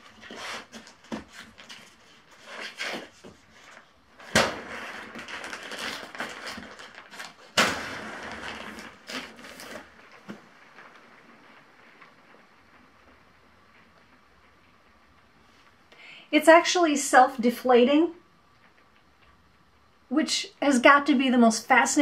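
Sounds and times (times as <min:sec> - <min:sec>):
fabric rustling: 0:00.0 - 0:15.9.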